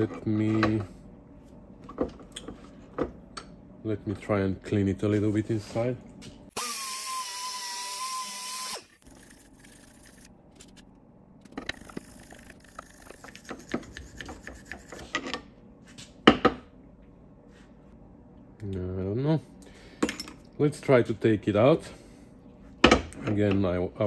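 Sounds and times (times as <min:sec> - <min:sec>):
power tool whining: 0:06.5 - 0:09.9.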